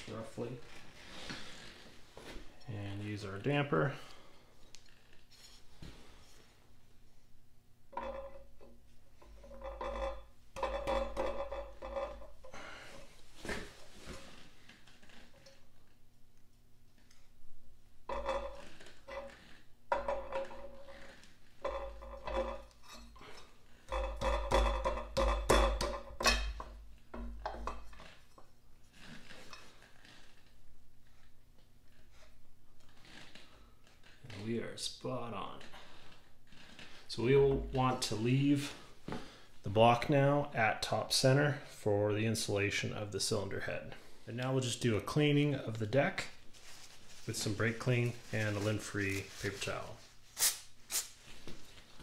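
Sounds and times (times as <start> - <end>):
metal clinking and scraping: 18.1 - 30.1.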